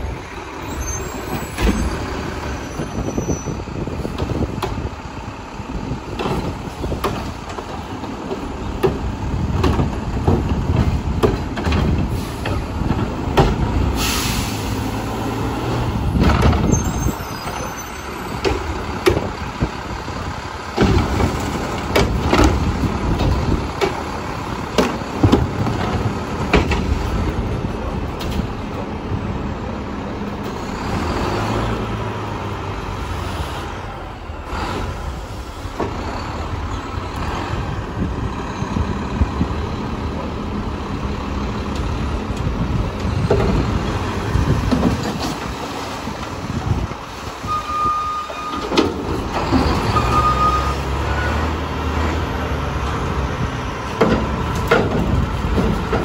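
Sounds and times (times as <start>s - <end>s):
diesel engine rumbling: 0.0s - 56.0s
clanks and knocks: 6.1s - 13.7s, 24.7s - 27.0s, 43.0s - 43.8s, 44.6s - 45.6s, 53.9s - 56.0s
air brake hiss: 14.0s - 15.0s.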